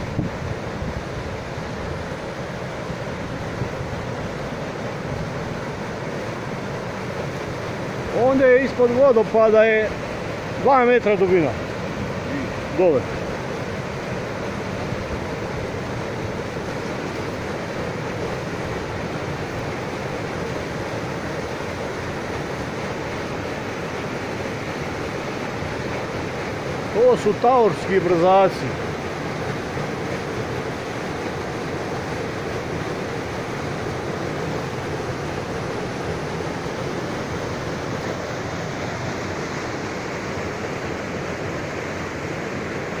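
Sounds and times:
waterfall rushing: 0.0 - 43.0.

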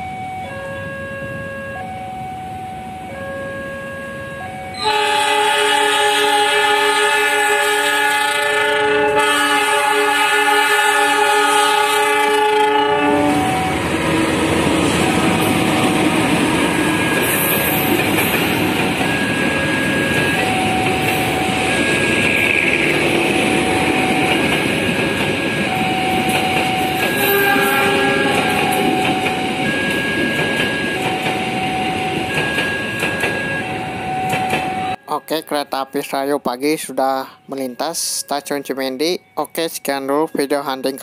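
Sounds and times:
level crossing warning tones: 0.0 - 41.0
locomotive horn: 3.4 - 17.8, 26.8 - 29.2
train wheels on rails: 13.2 - 35.0.

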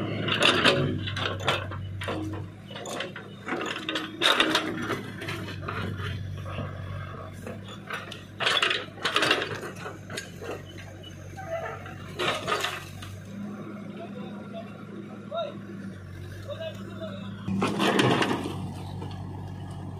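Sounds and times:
diesel engine running: 0.0 - 19.9
steel bucket scraping rocks: 11.4 - 13.0.

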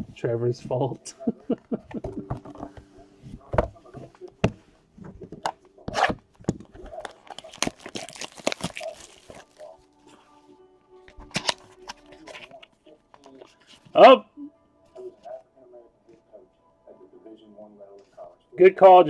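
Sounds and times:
wrapper crinkling and tearing: 6.7 - 9.8.

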